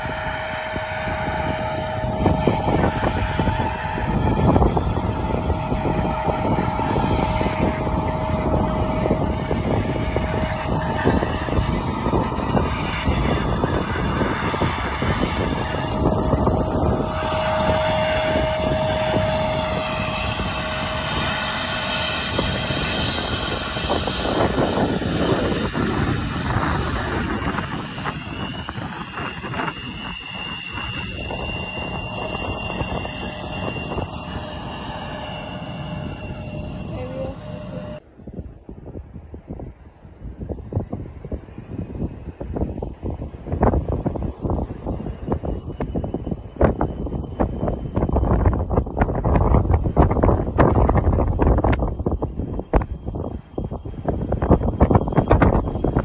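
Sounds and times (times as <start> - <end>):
jet airliner engines whining: 0.0 - 56.0.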